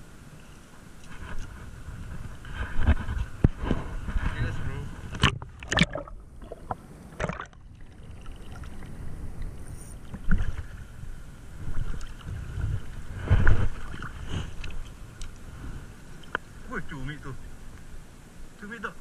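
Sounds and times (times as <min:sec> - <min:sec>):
water sloshing and splashing: 0:05.0 - 0:16.6.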